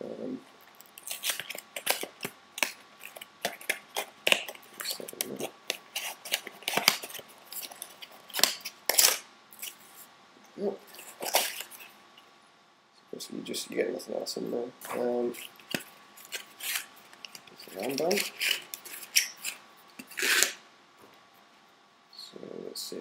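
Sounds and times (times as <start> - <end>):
packaging clicks and rustles: 0.8 - 9.8.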